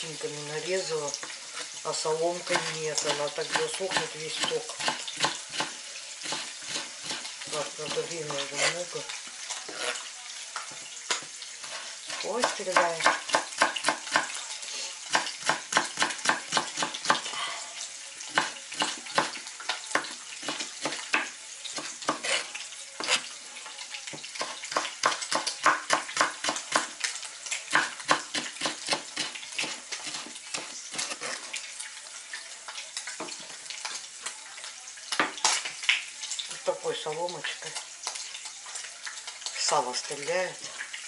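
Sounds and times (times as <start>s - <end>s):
fat sizzling in frying pan: 0.0s - 41.0s
knife chopping on wooden board: 12.1s - 14.4s.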